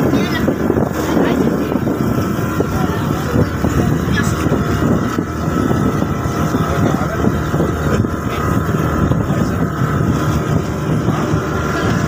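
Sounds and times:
motorboat engine running: 0:00.0 - 0:12.0
water along hull: 0:00.0 - 0:12.0.

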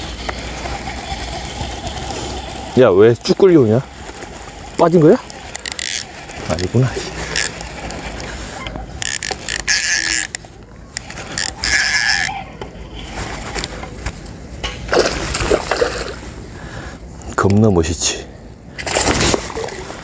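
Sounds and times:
fishing reel cranking: 0:00.0 - 0:08.4, 0:09.0 - 0:10.4, 0:11.0 - 0:13.7
rod handling rustling: 0:03.8 - 0:10.3
fish splashing: 0:14.9 - 0:16.3, 0:18.8 - 0:20.0.

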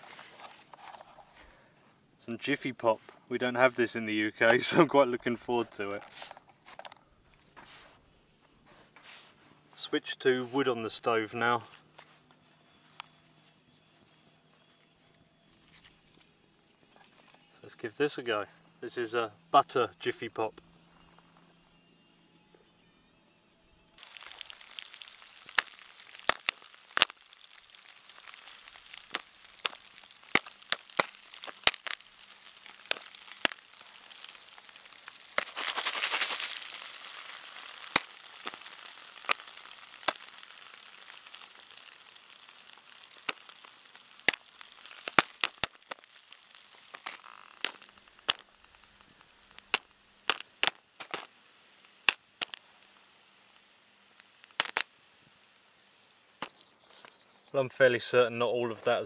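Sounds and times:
hot oil sizzling: 0:00.0 - 0:00.5, 0:23.9 - 0:57.3
popcorn popping: 0:24.0 - 0:57.2.

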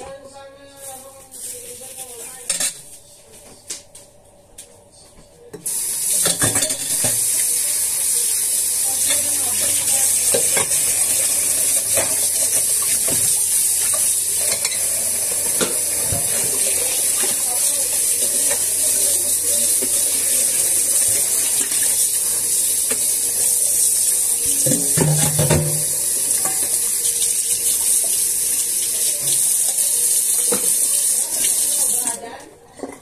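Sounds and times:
utensils clinking on cookware: 0:05.6 - 0:07.4, 0:09.0 - 0:22.2, 0:24.4 - 0:27.3
food sizzling in a pan: 0:05.6 - 0:32.3.

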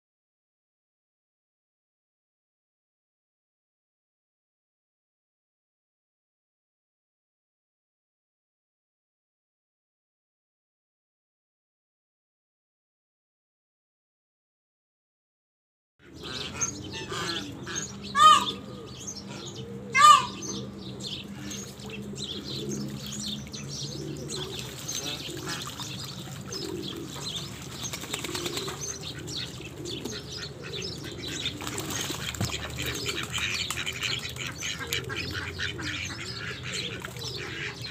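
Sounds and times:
birds chirping and calling: 0:16.0 - 0:37.9
high-pitched bird calls: 0:16.2 - 0:26.8
ducks splashing in water: 0:24.2 - 0:37.9.

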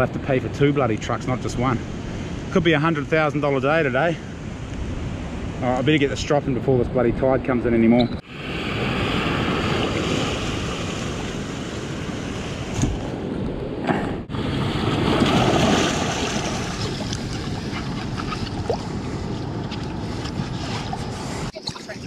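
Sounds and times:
wind buffeting microphone: 0:01.2 - 0:22.0
sea water washing over gravel: 0:14.6 - 0:17.8.

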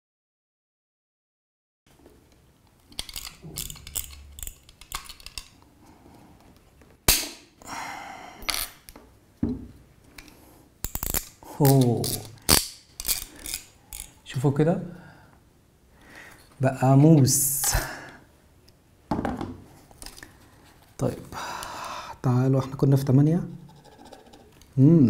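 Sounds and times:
metal clicks and scrapes: 0:02.8 - 0:05.6, 0:10.2 - 0:14.2.

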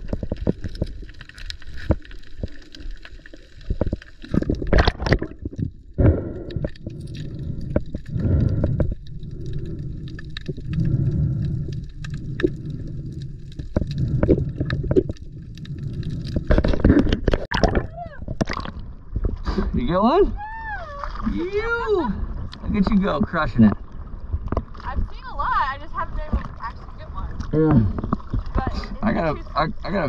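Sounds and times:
underwater rush and gurgle: 0:00.0 - 0:30.0.

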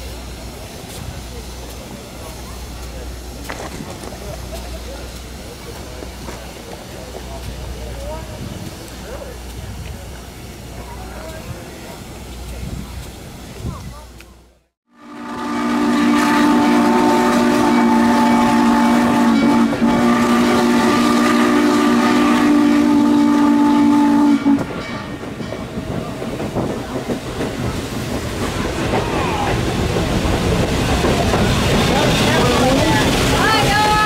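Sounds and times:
moving train rumble and clatter: 0:00.0 - 0:34.0
steam locomotive whistle: 0:14.9 - 0:24.8.

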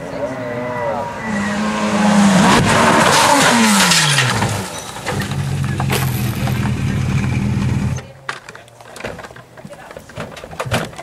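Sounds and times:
car skidding and scraping: 0:00.0 - 0:08.0
car engine running: 0:01.3 - 0:08.1.

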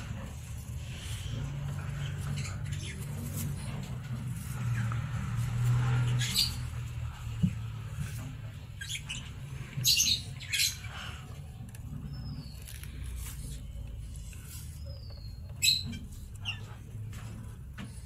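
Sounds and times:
parrots squawking: 0:01.0 - 0:03.6, 0:04.2 - 0:07.1, 0:08.5 - 0:11.5.

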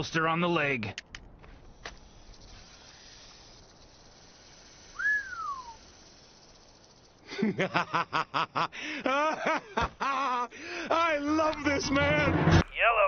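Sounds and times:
sliding whistle: 0:04.9 - 0:05.8
man laughing loudly: 0:07.3 - 0:11.0.

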